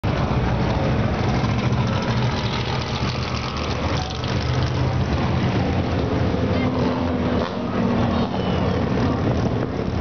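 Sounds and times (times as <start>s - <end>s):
racing car engines idling: 0.1s - 6.6s.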